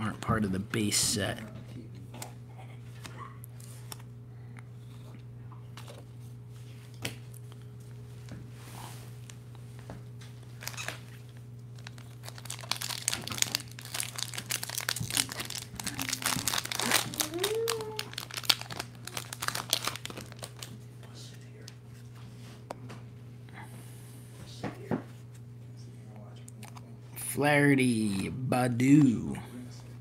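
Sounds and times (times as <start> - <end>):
plastic wrapper crinkling: 10.6 - 20.8.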